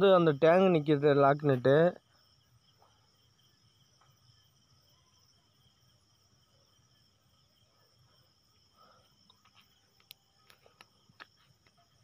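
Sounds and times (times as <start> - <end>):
faint high-pitched whine: 0.0 - 12.0
faint small clicks: 9.3 - 11.8.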